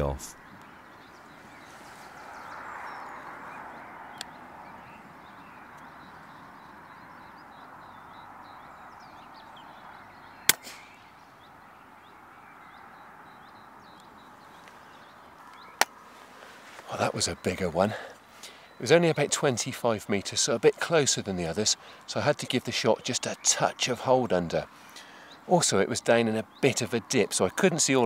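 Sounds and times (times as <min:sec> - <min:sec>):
birds calling: 0:00.0 - 0:28.0
air rifle shot: 0:10.5 - 0:11.0.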